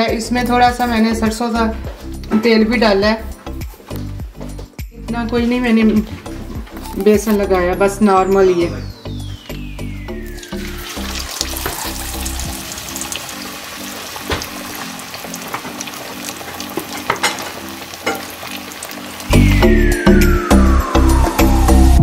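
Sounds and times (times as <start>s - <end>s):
background music: 0.0s - 22.0s
fish frying in oil: 9.1s - 19.8s
oil popping and crackling: 10.2s - 19.7s.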